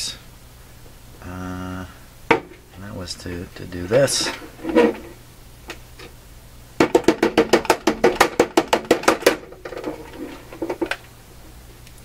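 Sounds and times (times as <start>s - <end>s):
turntable rattling and knocking: 6.8s - 11.1s.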